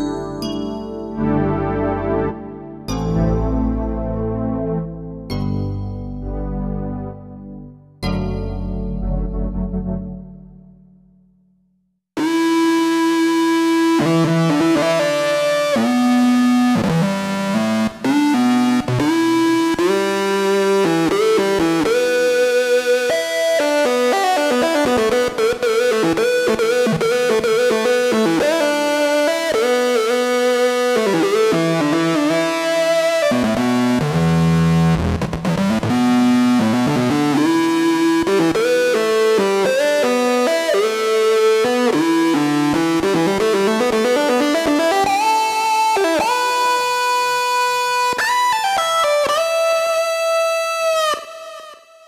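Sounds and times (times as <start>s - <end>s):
synth guitar lead solo: 12.2s - 51.6s.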